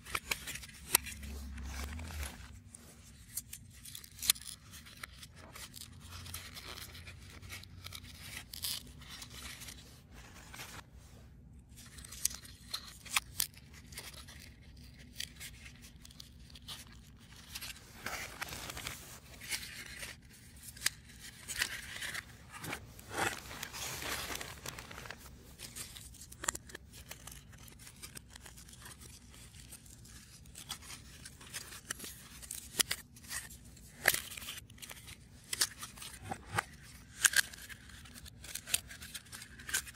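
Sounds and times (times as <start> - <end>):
rustling tearing noise: 0.0 - 10.8, 11.8 - 39.9.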